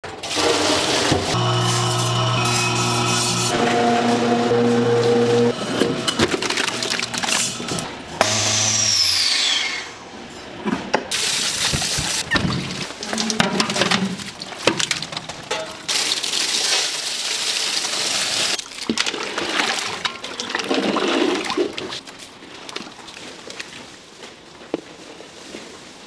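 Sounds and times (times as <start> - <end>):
water gushing: 11.1 - 13.4, 15.9 - 22.1.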